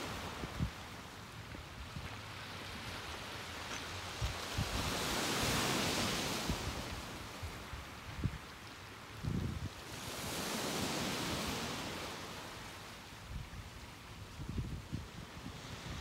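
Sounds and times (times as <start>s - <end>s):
ocean surf washing ashore: 0.0s - 14.1s, 14.8s - 16.0s.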